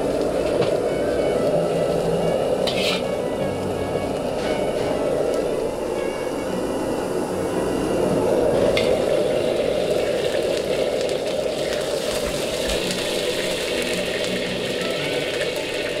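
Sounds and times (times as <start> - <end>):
rice sizzling in a wok: 0.0 - 16.0
metal ladle scraping a wok: 2.6 - 3.2.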